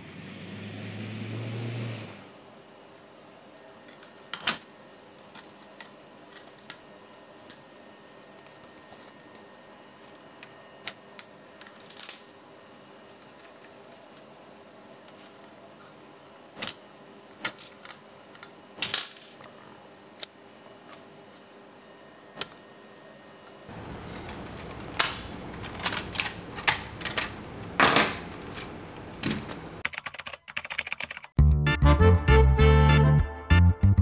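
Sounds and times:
plastic parts clicking: 23.8 - 29.7.

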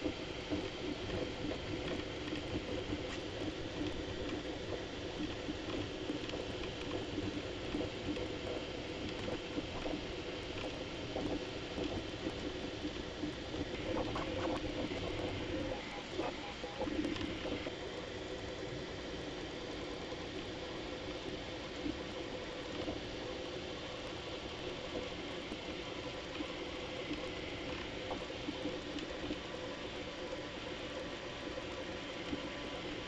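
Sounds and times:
sped-up printer mechanical chatter: 0.3 - 18.5.

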